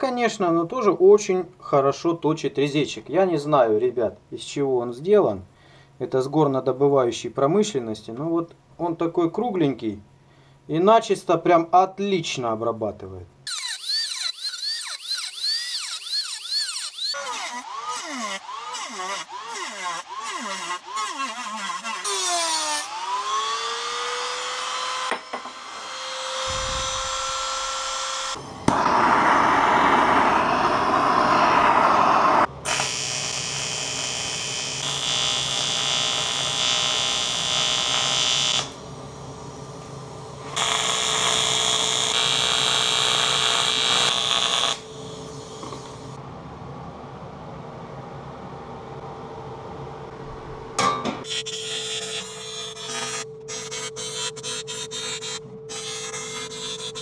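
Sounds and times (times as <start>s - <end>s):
power tool cutting metal sheet: 13.5s - 38.8s, 40.5s - 45.8s, 51.3s - 57.0s
welding arc buzzing: 13.5s - 38.9s, 40.4s - 46.2s, 51.2s - 57.0s.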